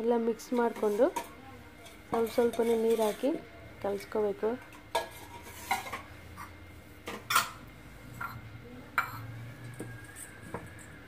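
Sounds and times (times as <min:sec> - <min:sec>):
steel vessels and spoon clinking: 0:00.4 - 0:03.4, 0:04.7 - 0:06.5, 0:09.0 - 0:09.3.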